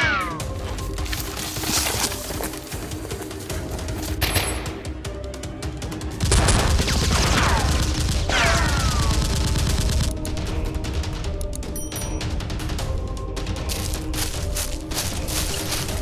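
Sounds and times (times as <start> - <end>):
background music: 0.0 - 16.0.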